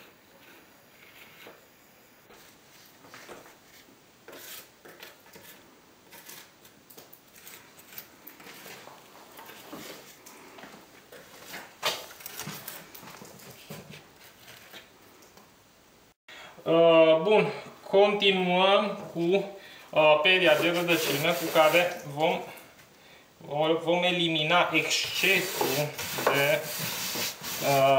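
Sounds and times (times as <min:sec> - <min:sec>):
wooden stick scraping and tapping: 0:24.8 - 0:27.8.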